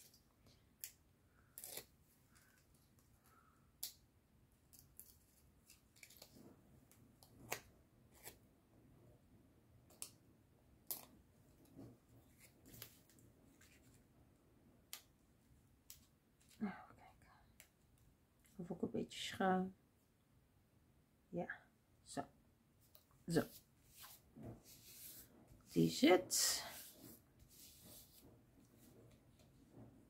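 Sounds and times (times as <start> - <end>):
faint clicks and rustles of paper: 0.0 - 8.4, 9.8 - 18.6, 22.8 - 25.8, 26.6 - 30.0.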